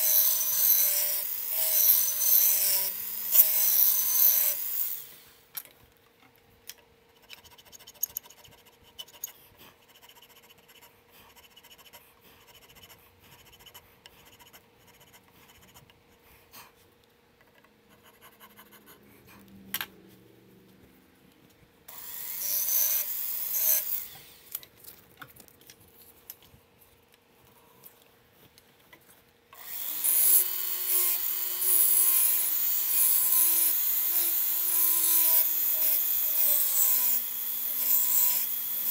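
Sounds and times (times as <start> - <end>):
checkering tool rasping: 0.0 - 5.2.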